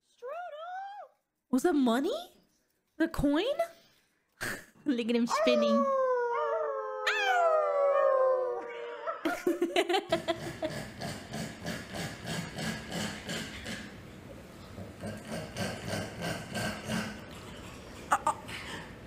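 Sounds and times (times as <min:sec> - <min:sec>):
man and dog howling: 0:05.4 - 0:09.2.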